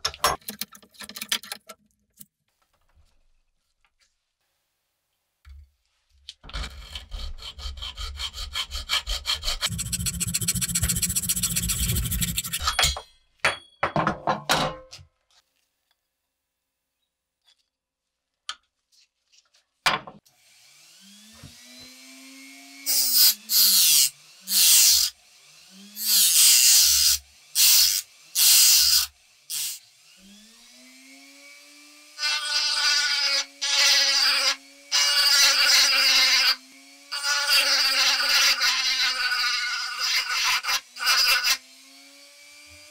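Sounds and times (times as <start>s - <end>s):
sanding bit grinding wood: 6.8s - 12.6s, 20.8s - 42.9s
rotary tool whining: 6.9s - 12.8s.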